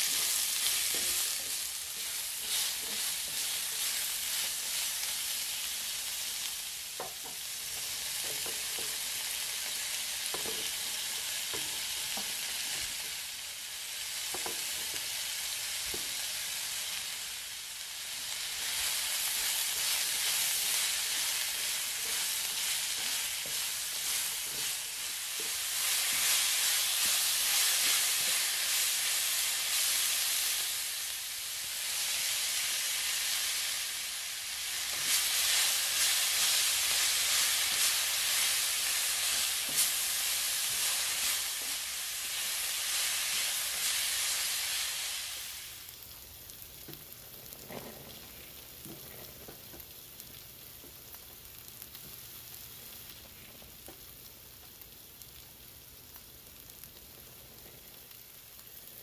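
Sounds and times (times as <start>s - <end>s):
vegetables sizzling in a wok: 0.0s - 59.0s.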